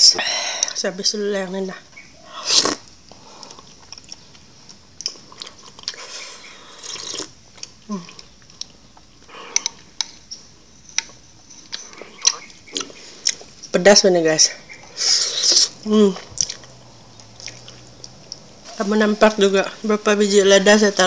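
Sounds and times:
soup slurping: 2.4 - 3.8, 5.7 - 7.4
soft wet chewing: 2.4 - 13.7, 14.7 - 18.8.

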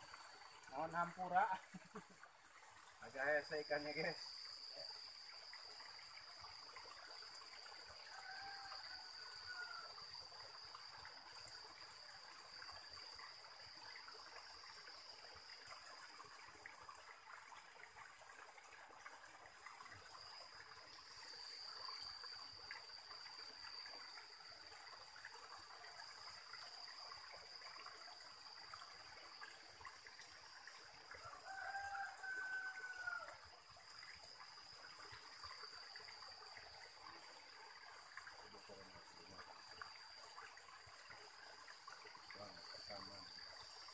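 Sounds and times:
high insect drone: 0.0 - 43.9
stream trickling: 0.0 - 43.9
rooster crowing: 8.1 - 10.0, 31.2 - 33.4.

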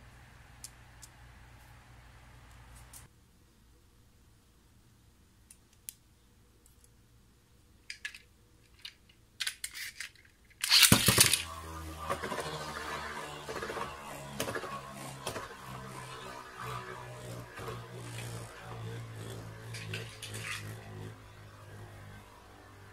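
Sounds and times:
spinning tops whirring and rattling: 7.9 - 22.9
ripcord ripping: 9.4 - 21.8.

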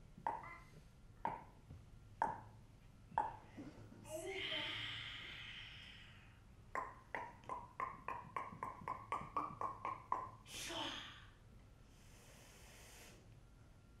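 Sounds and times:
tongue clicks: 6.7 - 10.4.

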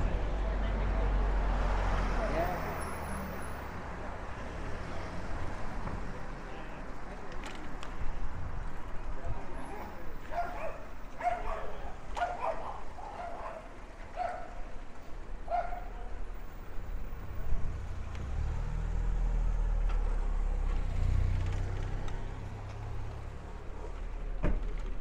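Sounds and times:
street noise: 0.0 - 25.0
dog barking: 10.3 - 14.6, 15.5 - 16.0
vehicle engine rumbling past: 16.4 - 24.4.

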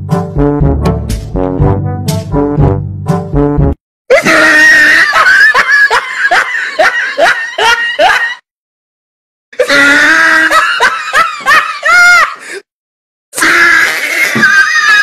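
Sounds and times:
high-pitched comic laughing: 4.1 - 8.4, 9.6 - 12.4.

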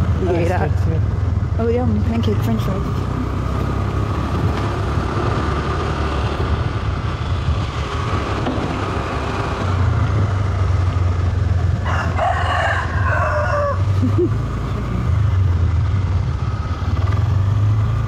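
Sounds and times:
motor scooter running: 0.0 - 18.0
road noise: 0.0 - 18.0
wind on microphone: 2.9 - 13.0.

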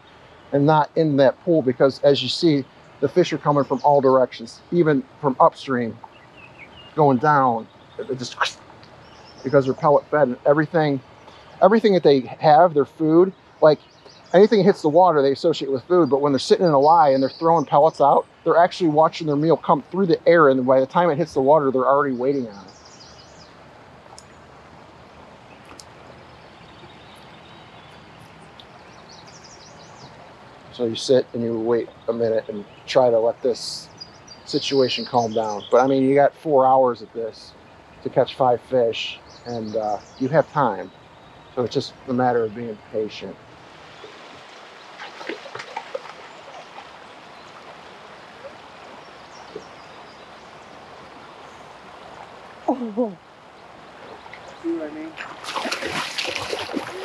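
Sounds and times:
outdoor background noise: 0.0 - 57.0
stream running water: 0.0 - 57.0
light ticks and small splashes: 25.5 - 30.6, 44.0 - 50.7, 54.1 - 57.0
faint clicks: 25.6 - 26.2.

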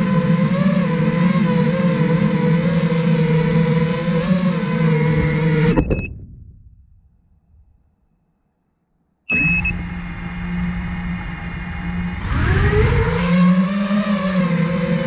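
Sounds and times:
quadcopter motors humming: 0.0 - 6.1, 9.3 - 15.0
quadcopter motors whining: 0.0 - 6.1, 9.3 - 15.0.

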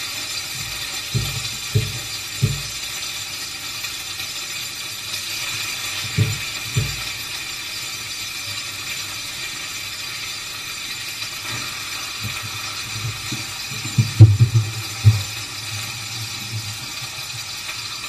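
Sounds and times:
chicken sizzling in a frying pan: 0.0 - 18.0
dull knocks: 1.1 - 2.8, 13.8 - 15.3.

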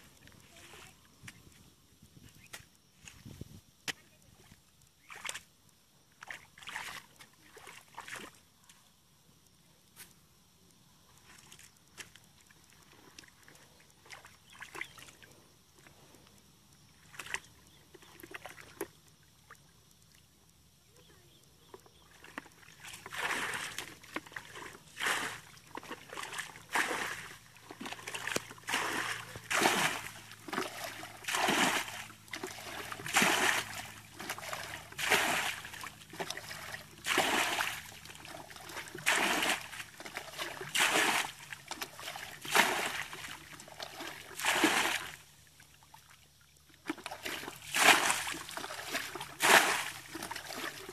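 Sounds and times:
bucket scooping water: 21.9 - 50.9
water thrown out splashing: 27.9 - 38.0, 38.8 - 43.3, 44.4 - 45.2, 47.0 - 50.9.

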